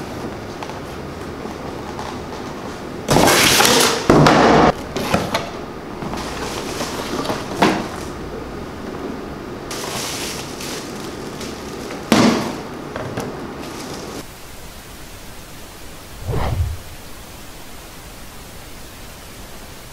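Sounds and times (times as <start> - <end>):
rustling crackling plastic: 9.7 - 12.1.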